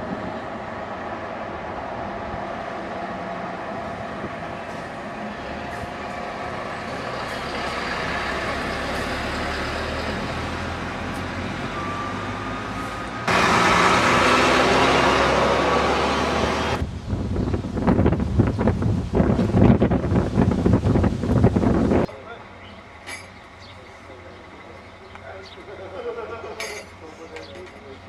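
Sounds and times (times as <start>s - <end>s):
truck diesel engine: 0.0s - 16.8s
rushing noise of passing truck: 0.0s - 20.8s.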